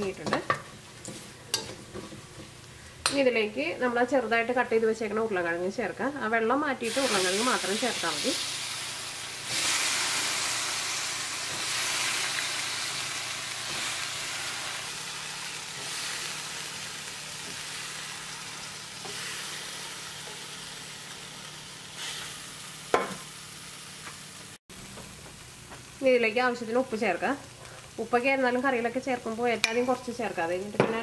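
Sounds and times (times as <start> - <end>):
potatoes sizzling in hot oil: 6.8 - 31.0.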